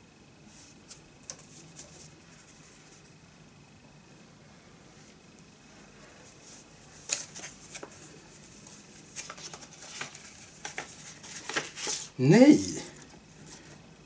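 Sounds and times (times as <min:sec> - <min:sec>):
paper sleeve rustling: 0:06.2 - 0:13.8.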